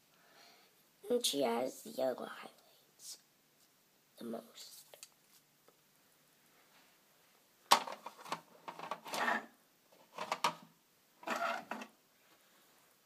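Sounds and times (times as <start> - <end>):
toy furniture scraping and clattering: 7.7 - 12.0.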